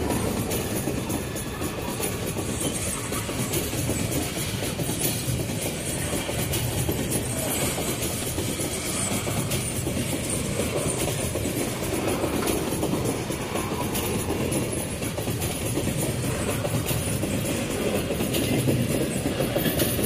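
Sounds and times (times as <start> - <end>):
clatter over rail joints: 0.0 - 20.0
steel wheels rumbling on rail: 0.0 - 20.0.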